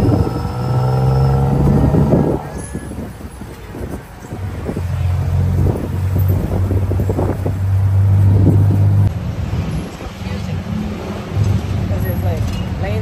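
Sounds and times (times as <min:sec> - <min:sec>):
wind buffeting microphone: 0:00.0 - 0:10.2
auto rickshaw engine humming: 0:00.0 - 0:13.0.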